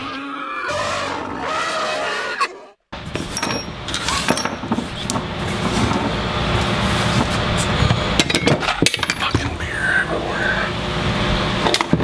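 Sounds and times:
metal tools clinking on wood: 3.1 - 4.8.

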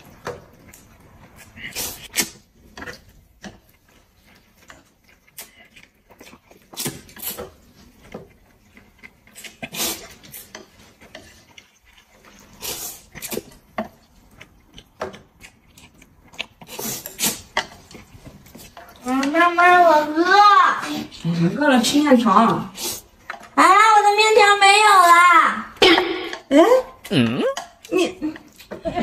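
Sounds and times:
man slurping noodles: 9.4 - 10.5.

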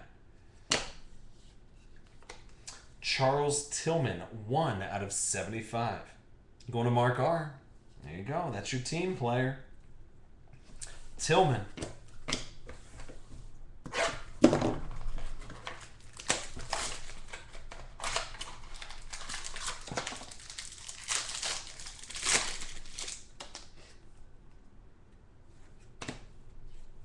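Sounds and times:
card pack wrapper crinkling: 15.3 - 23.7.

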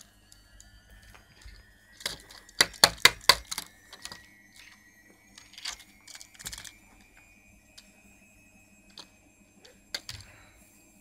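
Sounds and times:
plastic model car clicks: 1.5 - 4.8, 5.4 - 6.8.

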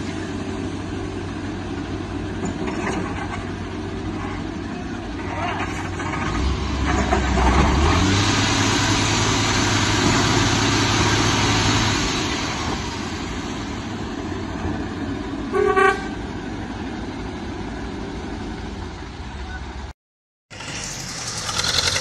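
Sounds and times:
truck diesel engine under load: 0.0 - 15.6, 20.5 - 22.0
truck horn toot: 15.5 - 16.2.

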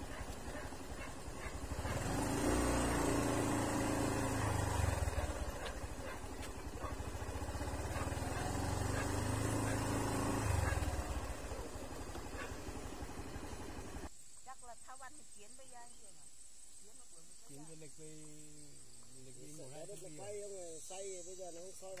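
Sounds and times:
vehicle engine running: 0.0 - 14.1.

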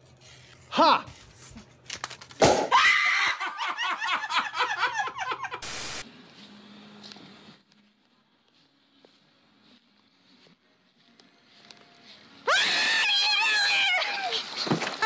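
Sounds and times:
woman laughing hard: 3.0 - 5.6.

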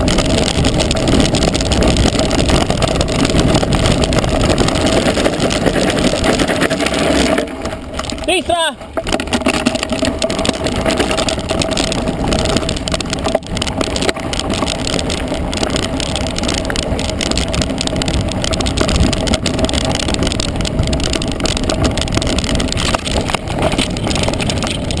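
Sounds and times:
bike rattling with small knocks: 0.0 - 25.0
bike tyres on loose ground: 0.0 - 25.0
wind rumble on microphone: 0.0 - 25.0.

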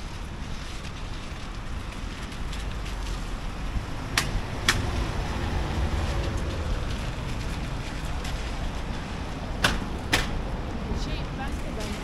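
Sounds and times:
traffic on wet streets: 0.0 - 12.0.

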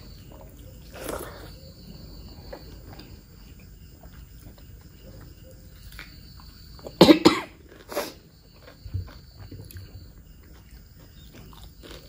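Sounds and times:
person coughing: 7.0 - 7.6.

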